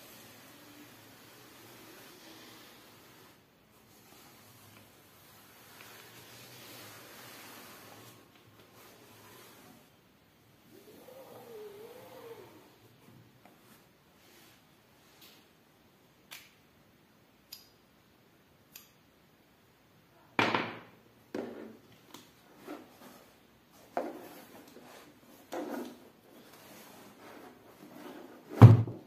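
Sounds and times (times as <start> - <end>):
faint rubbing: 0.0 - 10.0, 22.4 - 28.6.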